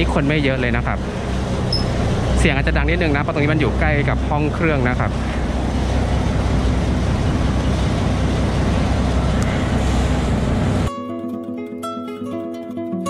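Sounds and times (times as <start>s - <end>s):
boat engine droning: 0.0s - 10.9s
acoustic guitar music: 10.8s - 13.0s.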